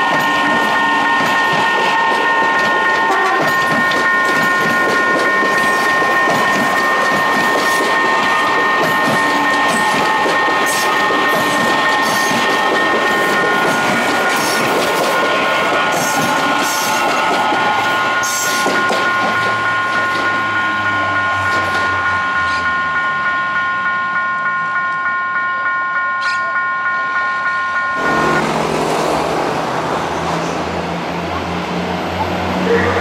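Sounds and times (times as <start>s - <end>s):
train wheels clacking on rails: 0.0s - 25.4s
high multi-tone chord: 18.0s - 30.2s.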